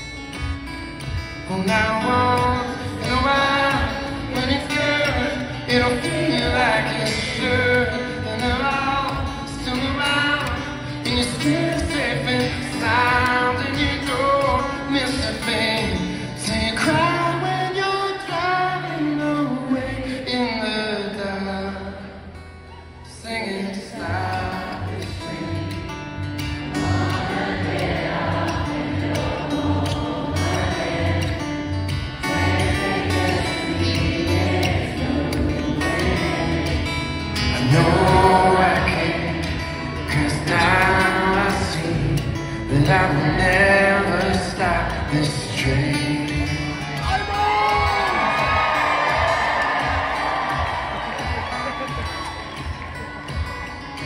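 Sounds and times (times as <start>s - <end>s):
acoustic guitar: 0.0s - 54.0s
man singing: 1.4s - 22.3s, 23.0s - 26.0s, 32.1s - 49.2s.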